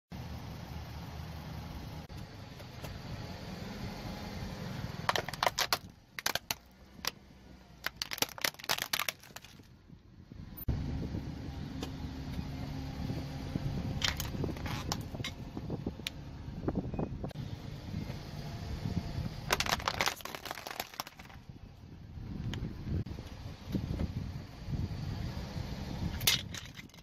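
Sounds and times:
car low rumble: 0.1s - 27.0s
plastic toy cracking under tyre: 5.1s - 7.2s, 7.8s - 9.7s, 19.5s - 21.5s, 26.2s - 27.0s.

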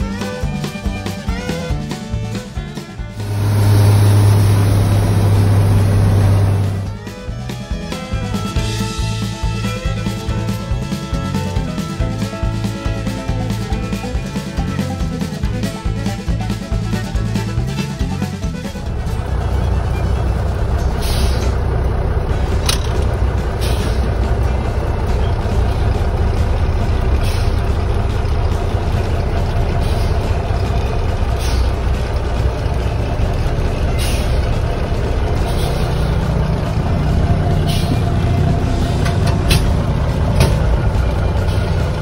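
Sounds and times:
diesel truck engine rumbling: 0.0s - 42.0s
short knocks and rattles: 22.4s - 25.6s, 37.8s - 41.9s.

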